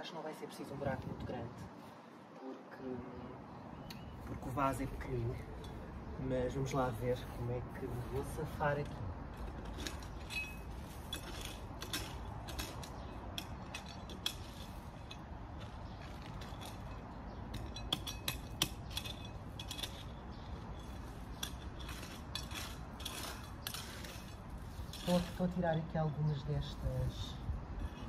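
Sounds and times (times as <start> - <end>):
sharp metal clinks: 10.2 - 12.0
shovel scraping stones: 17.6 - 25.9.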